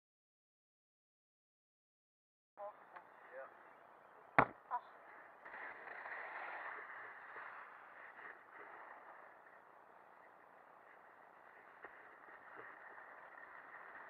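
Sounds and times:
skis sliding over packed snow: 2.9s - 14.0s
sharp knock: 4.4s - 4.6s.

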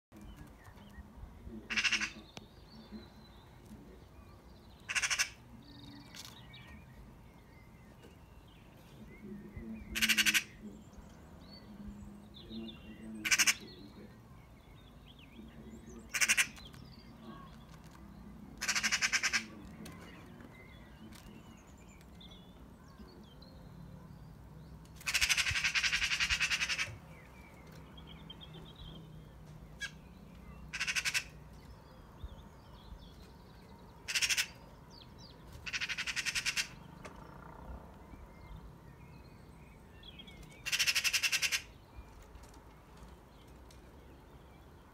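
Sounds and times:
small birds chirping: 0.1s - 44.9s
magpie rattling chatter: 1.7s - 2.2s, 4.8s - 5.4s, 10.0s - 10.6s, 13.2s - 13.6s, 16.1s - 16.8s, 18.6s - 19.5s, 25.0s - 27.0s, 30.7s - 31.4s, 34.0s - 34.6s, 35.6s - 37.5s, 40.5s - 41.7s.

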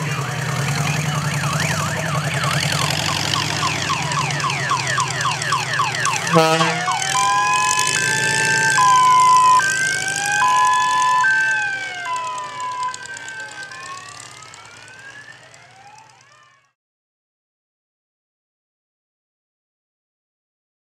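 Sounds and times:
electronic siren: 0.0s - 16.8s.

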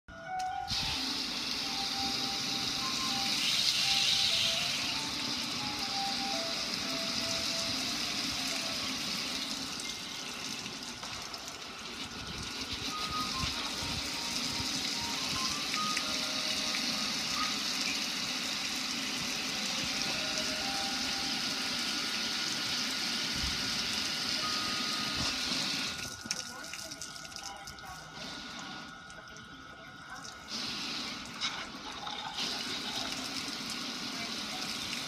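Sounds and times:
simple tune of high notes: 0.1s - 10.4s, 12.2s - 18.5s, 19.4s - 22.6s, 24.2s - 25.9s
water splashing on grill: 25.5s - 28.0s.

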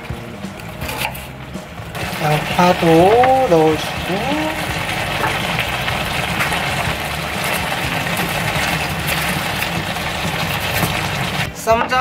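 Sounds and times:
pork sizzling in frying pan: 0.0s - 11.5s
small crackles: 2.0s - 11.5s.

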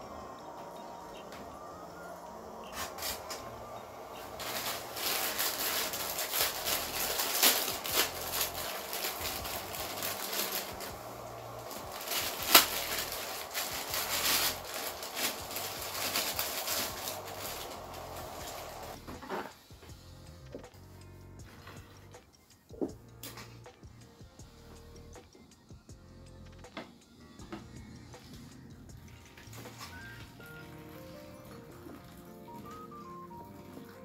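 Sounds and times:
sharp plastic crackle: 2.6s - 19.5s, 29.4s - 31.0s
plastic packet crinkling: 4.1s - 19.0s
packet tearing open: 4.4s - 19.0s.

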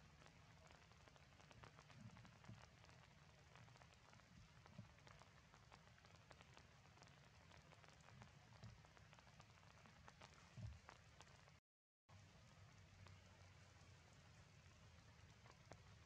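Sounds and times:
faint forest ambience: 12.1s - 16.0s.

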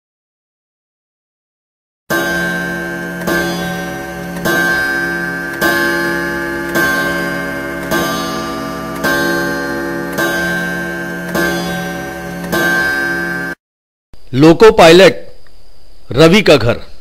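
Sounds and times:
ringing bell-like clock tick: 2.1s - 13.6s.

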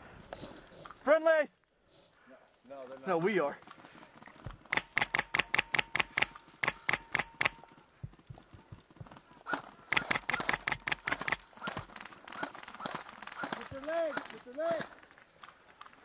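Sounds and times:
airsoft gun shots: 9.9s - 11.9s.

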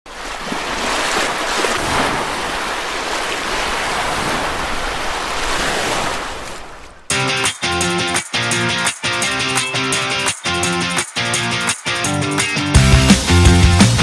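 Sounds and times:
ocean water rushing: 0.1s - 7.1s.

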